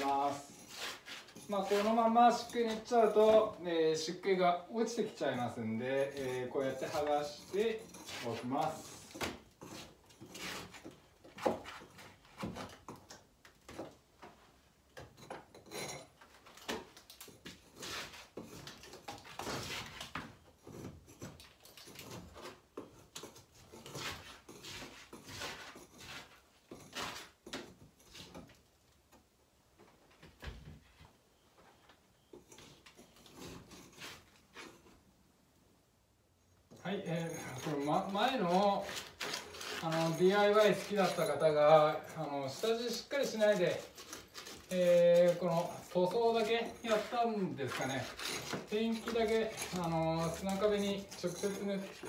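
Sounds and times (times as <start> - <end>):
scraping sand plaster off a wall: 0.0 - 3.5, 4.9 - 12.6, 17.3 - 27.4, 37.0 - 52.0.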